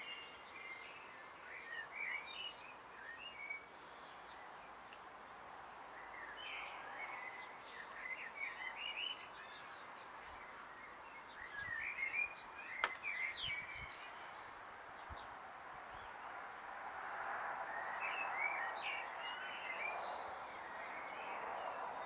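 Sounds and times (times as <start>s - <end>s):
small birds chirping: 0.0s - 16.4s
sharp click: 12.8s - 13.1s.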